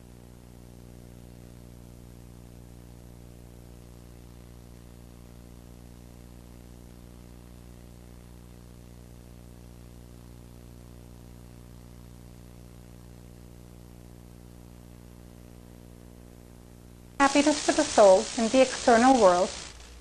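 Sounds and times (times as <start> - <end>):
electrical mains hum: 0.0 - 20.0
even hiss: 17.2 - 20.0.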